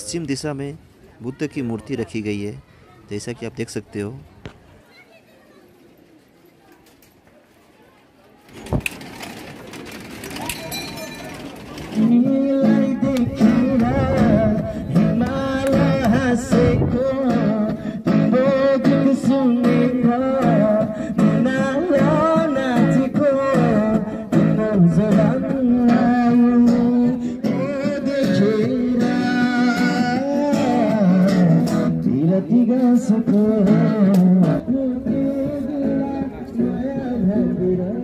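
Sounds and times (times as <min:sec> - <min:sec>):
acoustic guitar strumming: 0:10.6 - 0:38.0
man singing through a speaker: 0:11.9 - 0:38.0.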